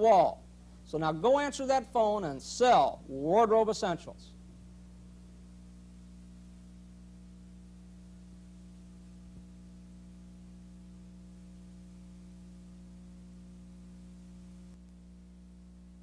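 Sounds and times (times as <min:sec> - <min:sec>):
faint hiss: 0:00.0 - 0:16.0
low electrical hum: 0:00.0 - 0:16.0
faint click: 0:14.7 - 0:15.0.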